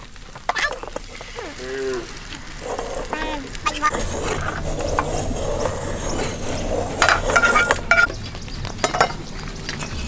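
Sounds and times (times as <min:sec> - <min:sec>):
leaves rustling on wooden table: 0:00.0 - 0:08.1.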